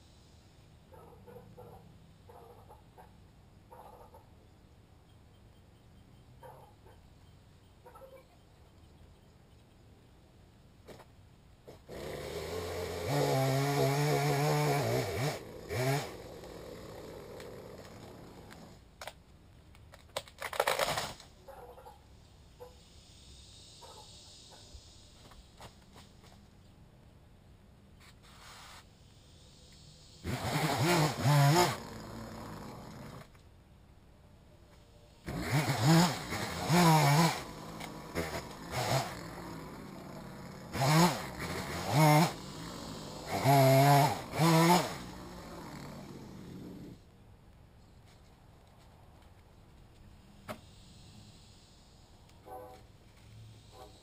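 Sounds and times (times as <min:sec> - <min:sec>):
chainsaw revving: 0:11.7 - 0:18.8, 0:30.2 - 0:33.3, 0:35.2 - 0:47.0
wood cracking: 0:17.3 - 0:21.2.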